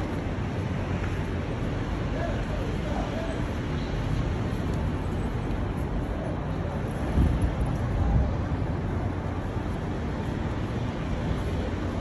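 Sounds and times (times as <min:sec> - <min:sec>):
traffic rumble: 0:00.0 - 0:12.0
wind on microphone: 0:06.8 - 0:10.0.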